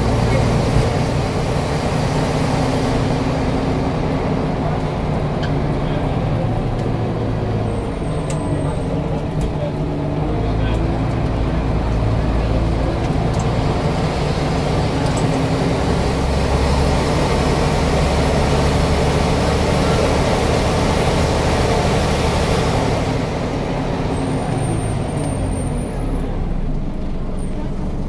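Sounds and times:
bus diesel engine drone: 0.0s - 28.0s
road and cabin noise: 0.0s - 28.0s.

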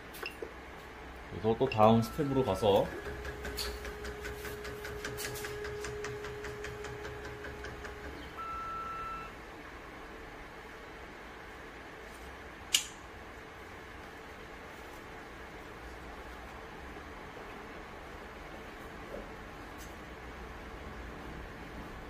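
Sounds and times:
short electronic beep: 8.4s - 9.3s.

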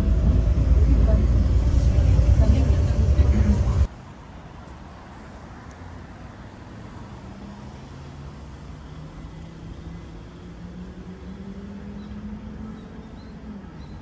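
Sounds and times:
vehicle motor humming: 0.0s - 3.9s.

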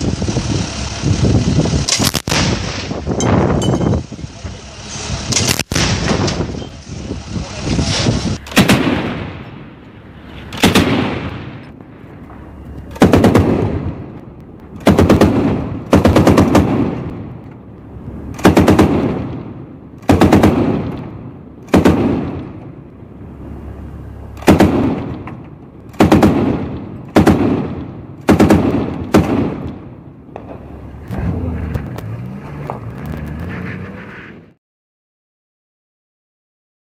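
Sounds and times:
anti-aircraft gun firing: 1.8s - 3.1s, 5.3s - 6.6s, 8.4s - 9.8s, 10.5s - 11.8s, 12.9s - 17.4s, 18.3s - 22.8s, 24.4s - 31.8s
heavy machine gun bursts: 8.4s - 9.5s, 12.9s - 14.0s, 24.4s - 29.8s.

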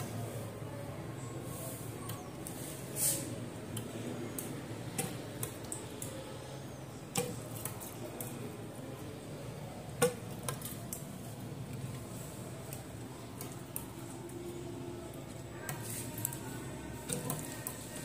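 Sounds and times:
taps and clicks of pots: 3.7s - 6.2s, 7.0s - 8.4s, 9.9s - 11.1s, 17.0s - 18.0s.

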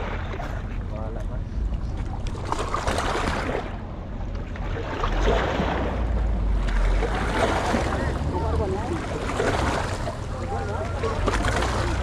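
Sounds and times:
sea water washing against rocks: 4.8s - 10.4s.

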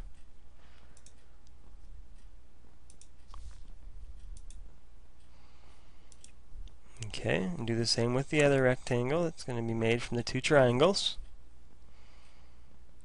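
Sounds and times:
low steady hum: 0.0s - 13.0s
computer clicks: 1.0s - 1.3s, 2.8s - 4.6s, 6.1s - 6.4s.

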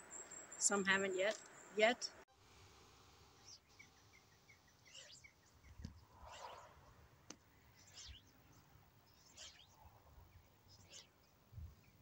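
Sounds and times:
faint bird chirps: 3.4s - 6.8s, 7.7s - 12.0s.

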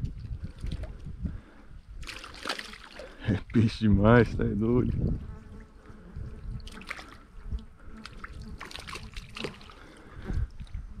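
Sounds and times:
shallow water sloshing: 2.0s - 3.6s, 6.6s - 10.8s
small splashes: 2.0s - 3.6s, 6.6s - 10.8s.

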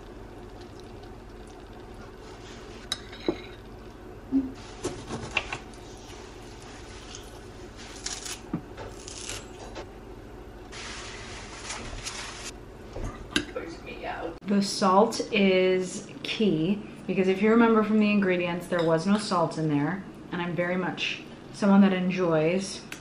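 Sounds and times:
low hum: 0.0s - 14.5s.

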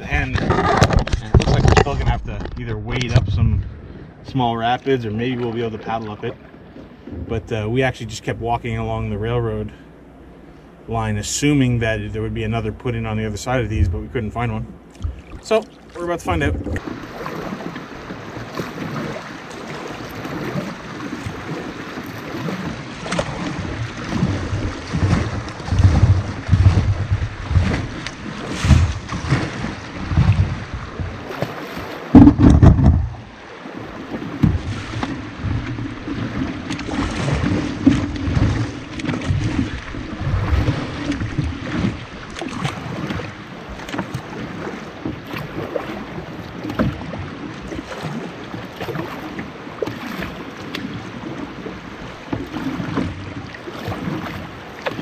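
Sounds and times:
wind buffeting microphone: 0.0s - 7.8s, 16.2s - 43.9s
river water rushing and lapping: 0.0s - 55.0s
loud bump: 32.1s - 33.2s.

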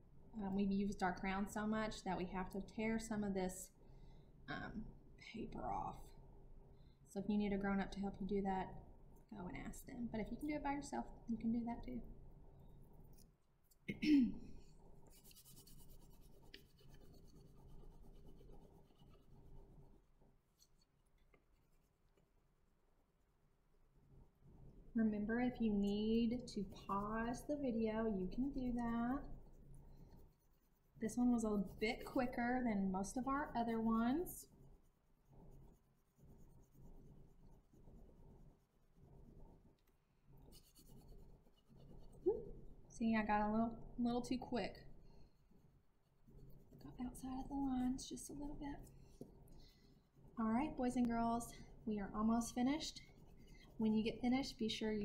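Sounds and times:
crayon scratching on paper: 14.9s - 22.3s, 25.6s - 39.8s, 40.4s - 42.3s, 45.3s - 55.0s.

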